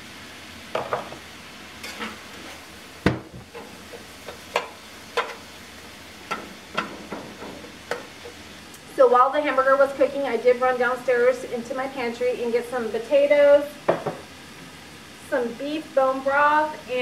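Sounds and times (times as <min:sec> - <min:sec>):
meat and vegetables sizzling: 0:00.0 - 0:17.0
metal spatula scraping pan: 0:01.8 - 0:02.6.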